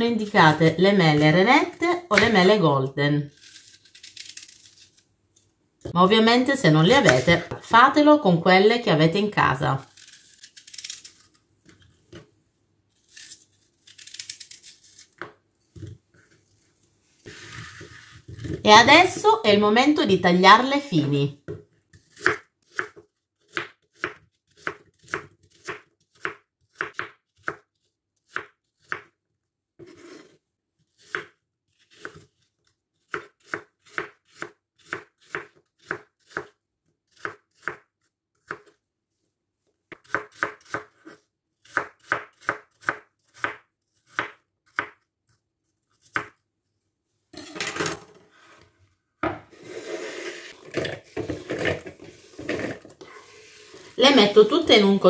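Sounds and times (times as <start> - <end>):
knife chopping on wooden board: 22.2 - 27.6.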